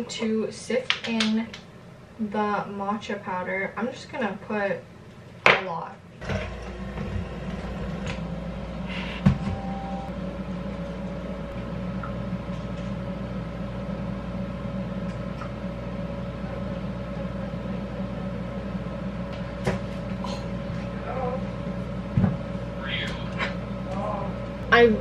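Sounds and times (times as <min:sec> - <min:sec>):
machine hum: 0:06.0 - 0:25.0.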